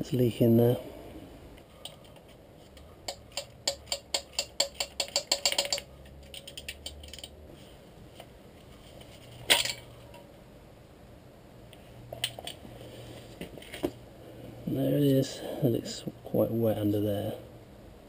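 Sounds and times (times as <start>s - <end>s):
ratchet spanner clicking: 3.1s - 7.3s
metallic clatter: 3.1s - 7.4s.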